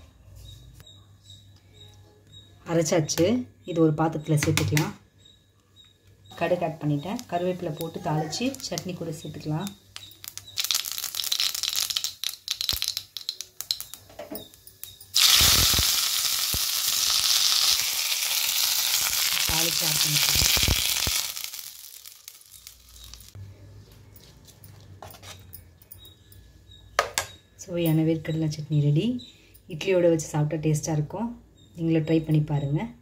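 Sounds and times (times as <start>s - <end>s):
mustard seeds popping in oil: 4.3s - 5.0s, 6.4s - 23.4s
loud sizzle: 10.0s - 14.1s, 15.1s - 23.4s.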